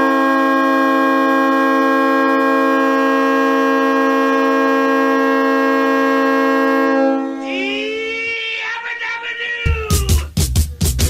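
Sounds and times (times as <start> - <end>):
goal horn blast: 0.0 - 8.3.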